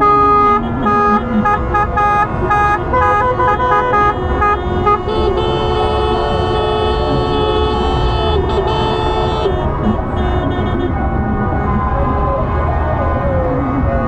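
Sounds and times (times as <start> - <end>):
long held horn blast: 0.0 - 11.0
car horns honking: 0.0 - 11.2
street noise: 0.0 - 14.0.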